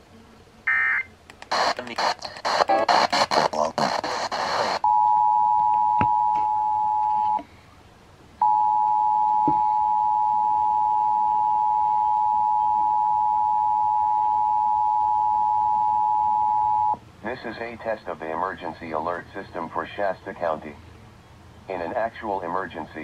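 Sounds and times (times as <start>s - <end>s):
noisy radio static: 0.7s - 4.9s, 17.2s - 20.8s, 21.6s - 23.0s
two-tone alert signal: 8.4s - 17.0s.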